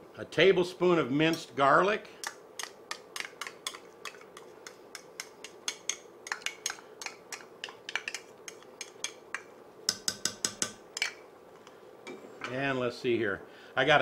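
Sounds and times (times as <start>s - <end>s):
spoon tapping against pot: 2.2s - 11.2s.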